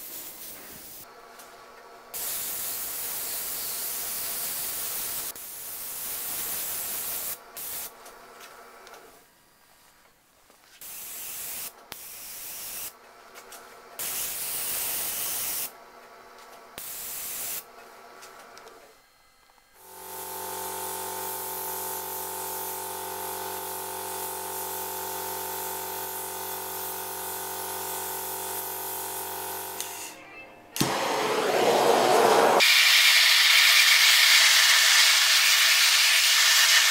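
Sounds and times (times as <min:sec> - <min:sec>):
airbrush spraying bursts: 0:00.0 - 0:01.1, 0:02.2 - 0:08.0, 0:10.8 - 0:13.0, 0:14.0 - 0:15.7, 0:16.8 - 0:17.7, 0:19.8 - 0:22.9, 0:30.8 - 0:36.9.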